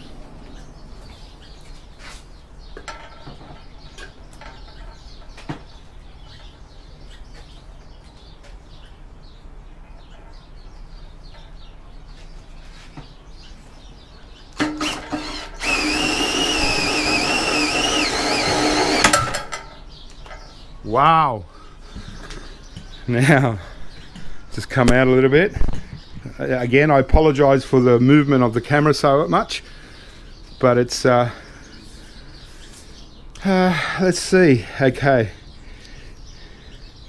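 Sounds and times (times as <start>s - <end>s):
electric drill motor whine: 14.6s - 19.4s.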